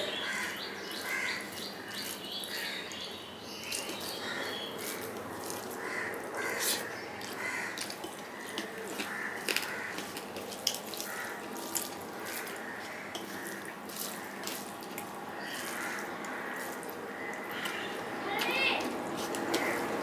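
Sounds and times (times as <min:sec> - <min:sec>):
fingers squishing rice: 0:01.0 - 0:03.0, 0:03.6 - 0:20.0
chewing with mouth smacks: 0:03.6 - 0:17.7.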